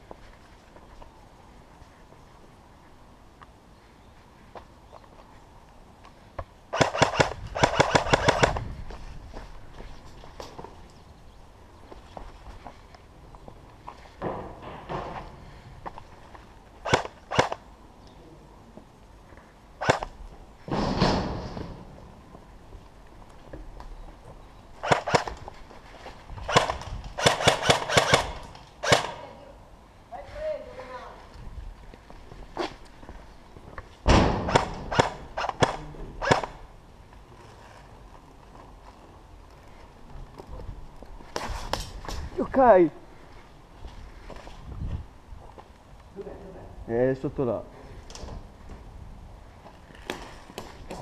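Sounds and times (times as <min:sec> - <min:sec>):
airsoft gun shots: 0:06.7 - 0:08.6, 0:16.8 - 0:17.6, 0:19.8 - 0:20.1, 0:24.8 - 0:25.4, 0:26.5 - 0:29.2, 0:34.1 - 0:36.6
light footsteps: 0:08.5 - 0:11.1.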